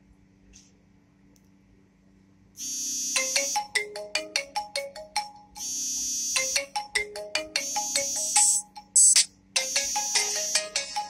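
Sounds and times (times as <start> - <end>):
mobile phone ringtone: 2.6 - 11.0.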